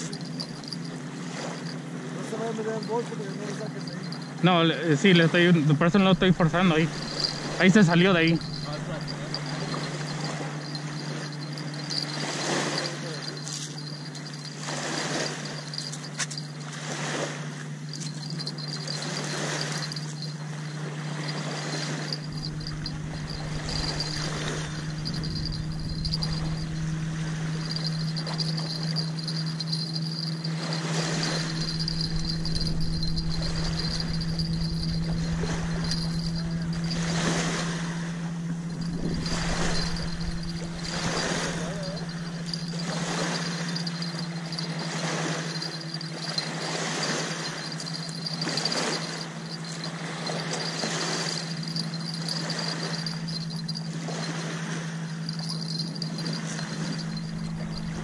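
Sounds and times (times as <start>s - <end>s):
small waves lapping on shore: 0.0s - 58.0s
steady low hum: 0.0s - 58.0s
wind rumbling on microphone: 21.3s - 54.3s, 55.0s - 58.0s.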